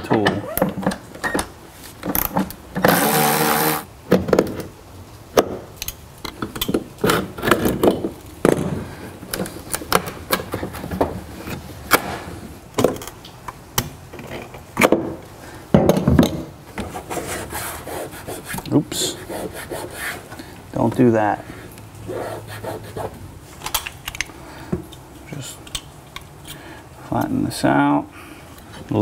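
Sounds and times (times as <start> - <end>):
clicks taps and knocks of parts: 5.4 - 8.7, 23.6 - 25.0, 25.6 - 26.6.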